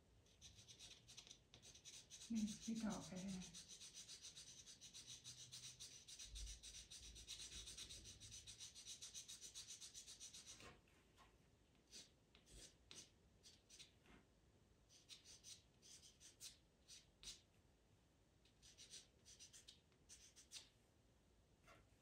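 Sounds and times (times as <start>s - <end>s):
pencil scratching on paper: 0.3s - 10.8s, 11.9s - 14.0s, 14.9s - 17.4s, 18.6s - 20.7s.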